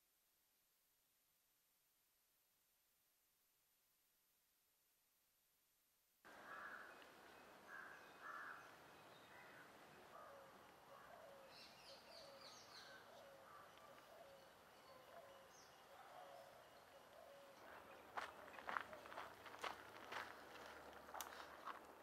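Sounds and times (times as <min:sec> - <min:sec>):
birds chirping and calling: 0:07.7 - 0:19.2.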